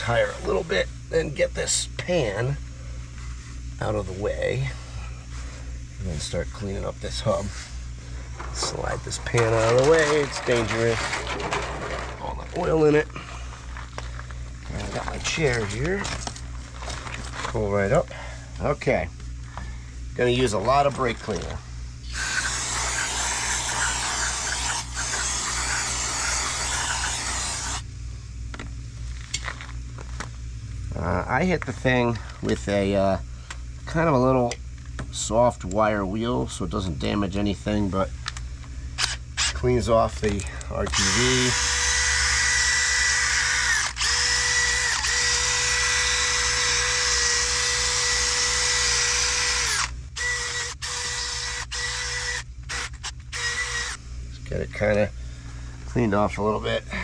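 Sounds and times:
drill spinning wire wheel on metal: 0:08.4 - 0:13.8, 0:20.8 - 0:27.8, 0:40.9 - 0:54.0.

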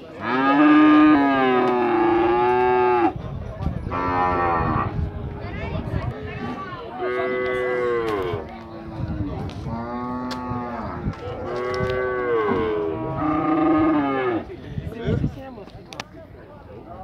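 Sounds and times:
cattle mooing: 0:11.5 - 0:14.4.

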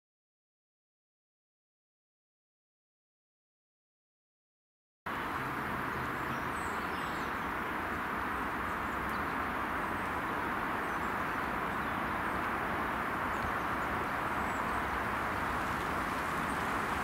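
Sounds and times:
outdoor background hiss: 0:05.1 - 0:17.0.

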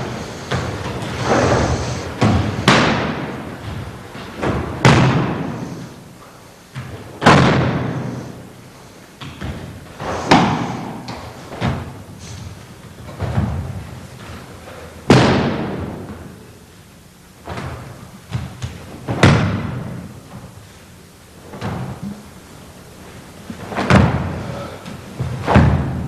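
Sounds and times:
bodies thudding on floor: 0:23.4 - 0:26.0.

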